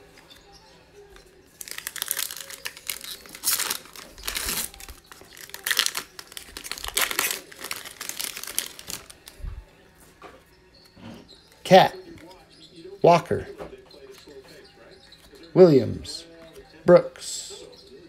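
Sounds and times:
foil wrapper tearing and crinkling: 1.6 - 9.4.

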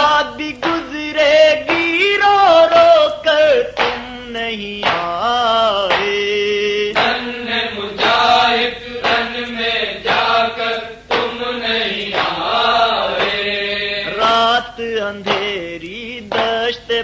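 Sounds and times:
men chanting a lament: 0.0 - 17.0
steady beat: 6.9 - 16.7.

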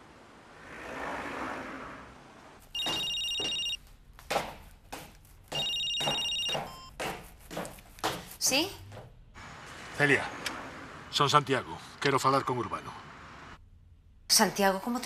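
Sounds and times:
mobile phone ringtone: 2.8 - 3.8, 5.6 - 6.9
footsteps on metal stairs: 2.8 - 9.2.

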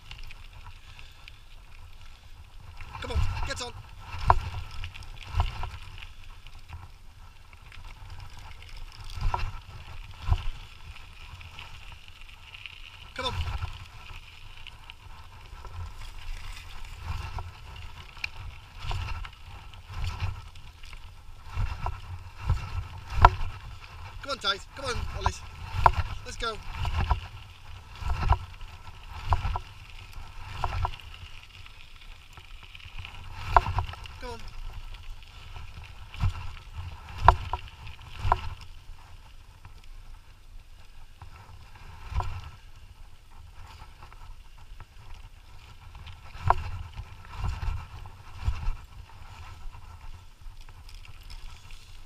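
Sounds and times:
scooter wheels rumbling: 0.0 - 52.0.

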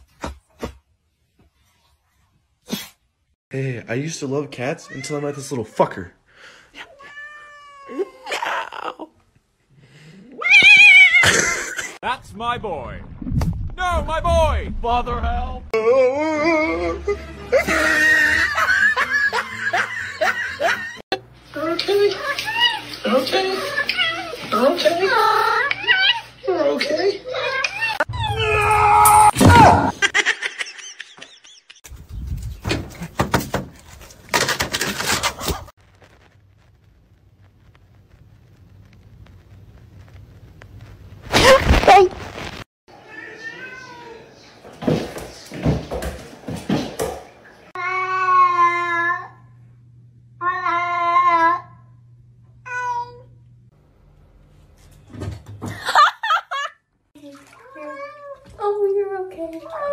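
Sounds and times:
cat meowing: 6.8 - 8.3, 43.0 - 44.4
knocks and thumps: 32.6 - 34.9.

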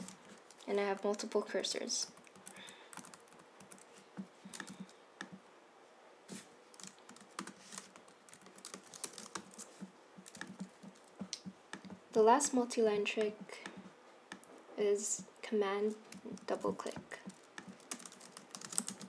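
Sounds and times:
keyboard keys clicking: 6.8 - 11.9, 16.1 - 19.0.

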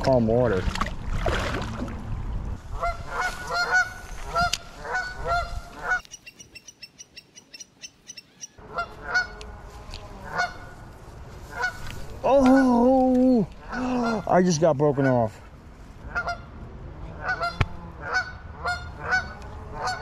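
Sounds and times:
geese honking: 2.8 - 6.8, 8.2 - 10.8, 11.5 - 11.9, 16.1 - 16.5, 17.2 - 20.0.

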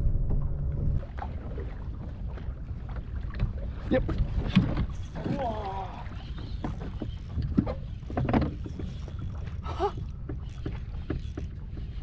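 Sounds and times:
low wind rumble: 0.0 - 12.0
water lapping against hull: 0.3 - 12.0
fishing reel clicks: 6.1 - 12.0.

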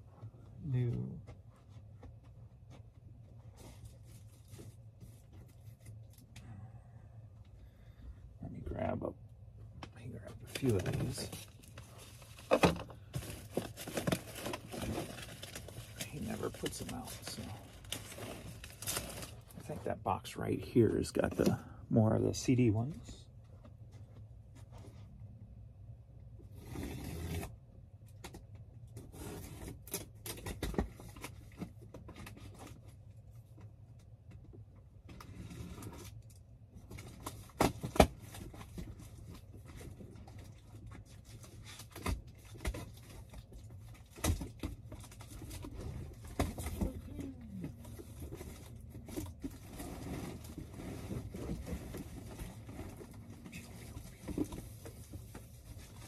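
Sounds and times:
plastic scraping: 44.1 - 56.0.

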